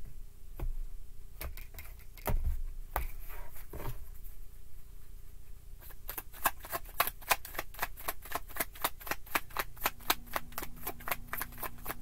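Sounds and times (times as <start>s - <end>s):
cards being shuffled: 5.8s - 12.0s.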